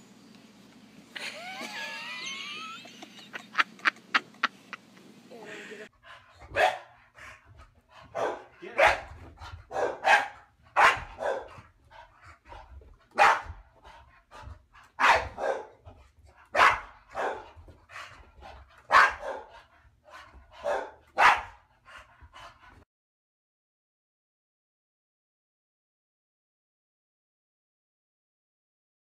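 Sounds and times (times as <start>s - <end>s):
dog barking: 6.5s - 7.0s, 8.1s - 11.6s, 13.2s - 13.6s, 15.0s - 15.8s, 16.5s - 17.6s, 18.9s - 19.6s, 20.6s - 21.6s.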